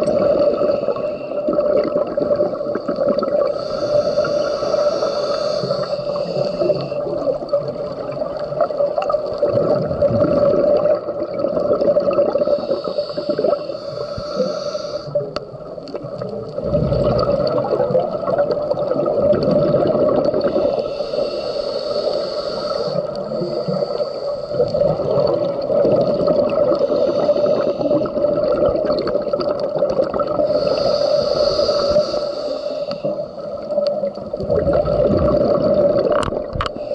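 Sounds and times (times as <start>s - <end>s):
exhaled bubbles rumbling: 0.0s - 4.9s, 5.6s - 13.7s, 15.1s - 20.9s, 23.0s - 32.2s, 33.0s - 36.9s
regulator hissing inhalation: 0.1s - 1.7s, 3.3s - 7.6s, 12.3s - 15.5s, 20.3s - 25.7s, 26.5s - 28.4s, 30.2s - 34.2s, 36.6s - 36.9s.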